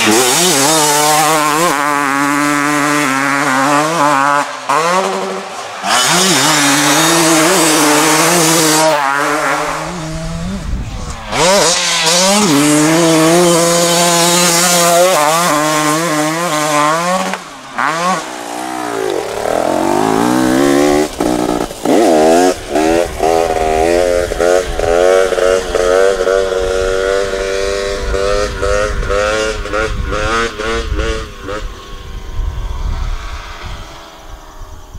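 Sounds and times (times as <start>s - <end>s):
dirt bike engine revving: 0.0s - 34.0s.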